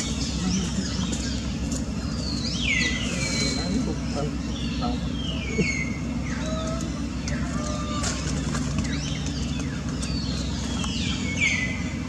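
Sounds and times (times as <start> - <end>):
steady low rumble: 0.0 - 12.0
high falling animal calls: 5.0 - 9.9.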